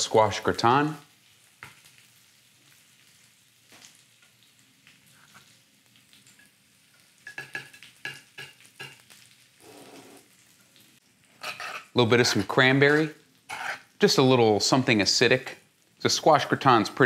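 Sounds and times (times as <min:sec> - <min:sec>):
metal spoon scraping a skillet: 0:07.2 - 0:10.2, 0:11.3 - 0:14.0.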